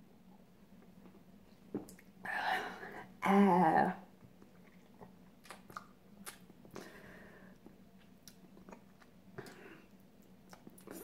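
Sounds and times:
mouth clicks and lip smacks: 1.7s - 2.1s, 4.4s - 6.9s, 10.2s - 11.0s
soft breath: 6.7s - 7.7s.

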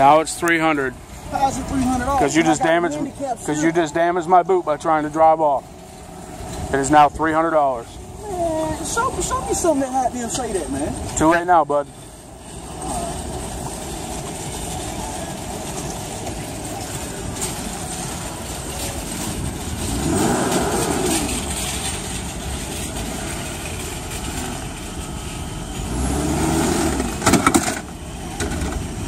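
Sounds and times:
outdoor noise: 0.0s - 29.0s
car engine revving: 17.9s - 28.7s.

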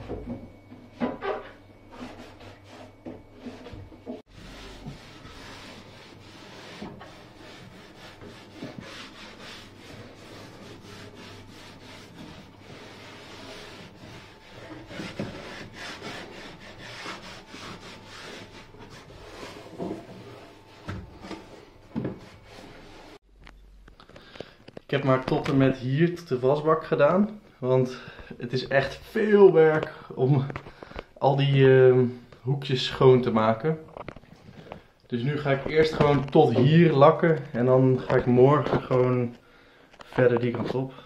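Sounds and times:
abrasive pad scrubbing wood: 1.9s - 23.2s.

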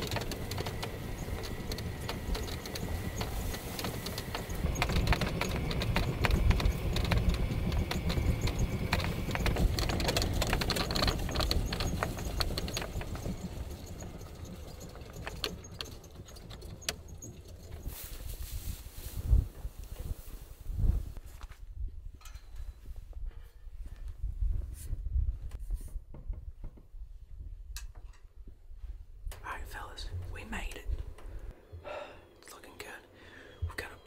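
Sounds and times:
utility vehicle engine and road rumble: 0.0s - 21.2s
vehicle and load rattling: 0.0s - 21.2s.

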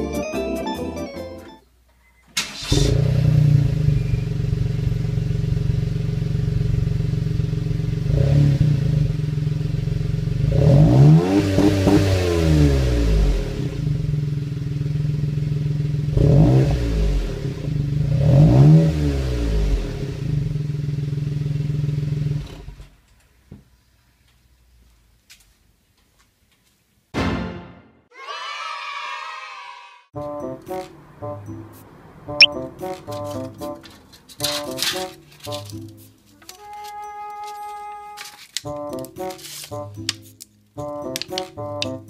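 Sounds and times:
car engine idling and revving: 2.6s - 22.9s.

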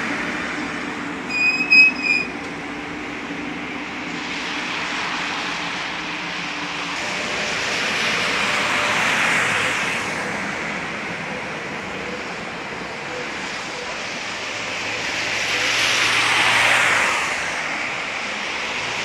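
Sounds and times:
tram rolling on wet track: 0.0s - 19.0s
tram running gear hum: 0.0s - 19.0s
high-pitched squeal: 1.3s - 2.4s
steady rain: 4.2s - 6.0s.

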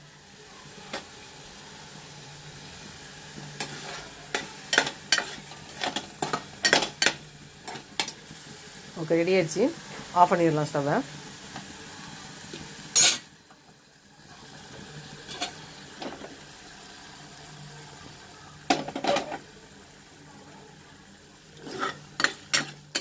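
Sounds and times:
gas stove hiss: 0.0s - 23.0s
ladle scraping metal pan: 21.6s - 23.0s.

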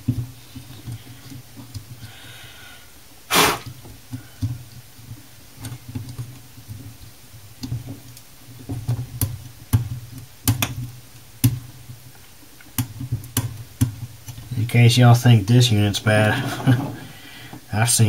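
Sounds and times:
sharp clicks and taps: 8.9s - 11.6s.

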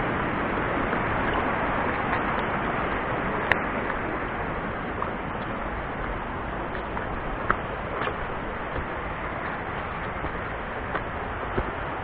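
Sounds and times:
steady rushing noise: 0.0s - 12.0s
footsteps on stony trail: 6.7s - 12.0s.

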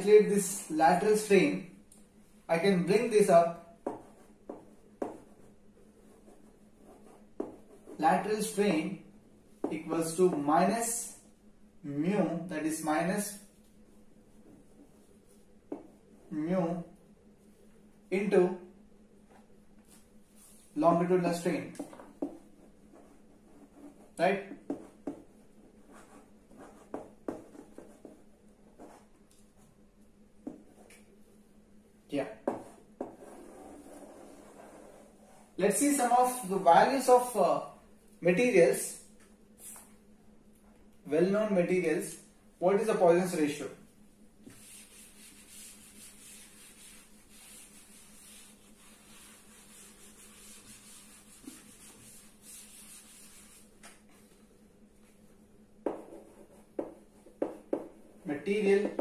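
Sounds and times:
faint steady hum: 0.0s - 59.0s
chalk scratching on blackboard: 3.8s - 8.6s, 21.8s - 29.2s, 32.4s - 36.1s, 44.4s - 53.8s, 55.9s - 58.0s
duster rubbing on blackboard: 32.5s - 35.6s, 44.4s - 53.8s.

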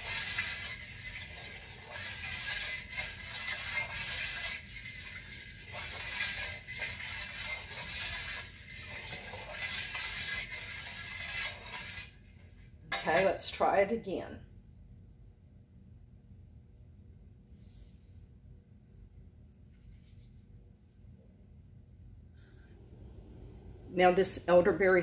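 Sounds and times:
metal spoon stirring in steel bowl: 0.0s - 13.5s.

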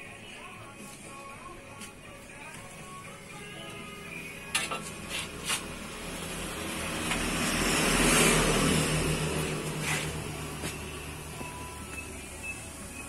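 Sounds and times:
road vehicle passing: 4.7s - 13.0s.

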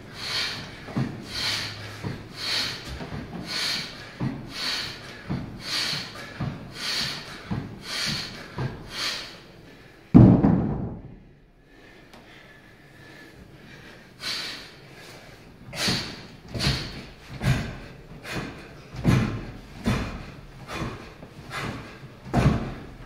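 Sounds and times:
forceful breaths: 0.0s - 10.2s, 10.9s - 23.0s
barbell thudding on wooden floor: 10.1s - 11.2s, 16.6s - 23.0s.

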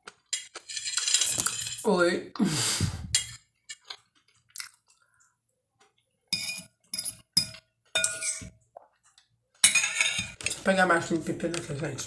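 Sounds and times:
fork scraping a glass plate: 0.3s - 1.8s.

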